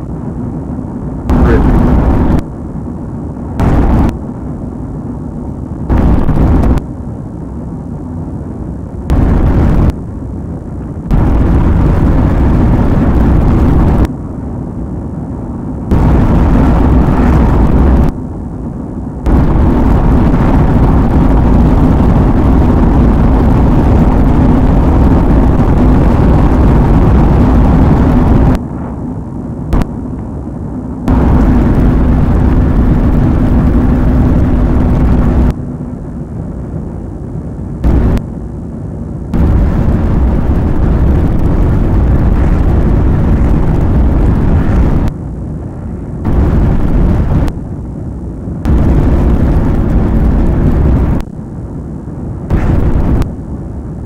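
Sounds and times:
steady low hum: 0:00.0 - 0:54.0
loud rumbling vehicle: 0:00.8 - 0:04.7, 0:08.9 - 0:14.1, 0:15.7 - 0:18.5, 0:19.1 - 0:30.2, 0:31.0 - 0:36.2, 0:37.8 - 0:38.3, 0:39.3 - 0:47.9, 0:48.6 - 0:51.5, 0:52.4 - 0:53.5.

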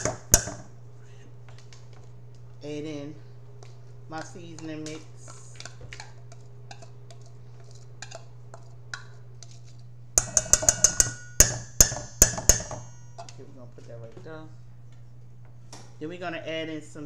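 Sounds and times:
glass bowl clinking on metal bowl: 0:10.2 - 0:13.4.

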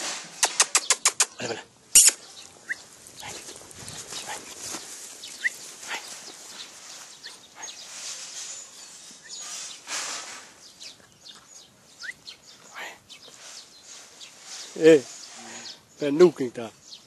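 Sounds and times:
puppy noises: 0:00.4 - 0:06.6, 0:07.2 - 0:08.8
rustling and scuffling on grass: 0:02.0 - 0:17.0.

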